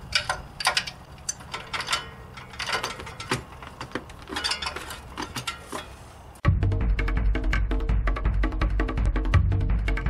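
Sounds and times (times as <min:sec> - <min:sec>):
hand tools clanking on metal: 0:00.0 - 0:06.4.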